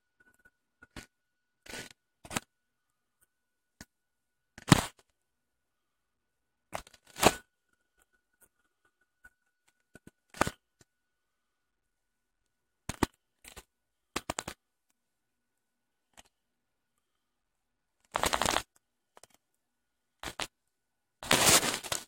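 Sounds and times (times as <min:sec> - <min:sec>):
faint high whine: 0:00.0 - 0:12.9.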